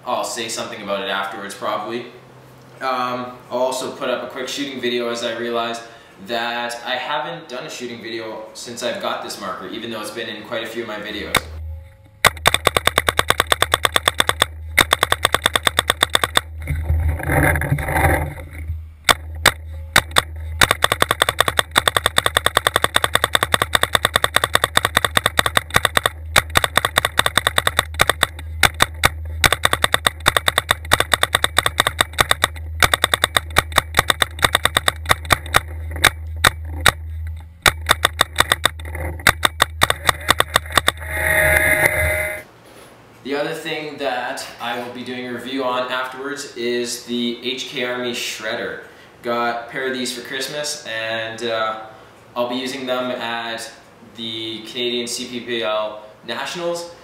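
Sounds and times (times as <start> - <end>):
paintball marker firing rapidly: 12.2 - 16.5, 19.1 - 41.0.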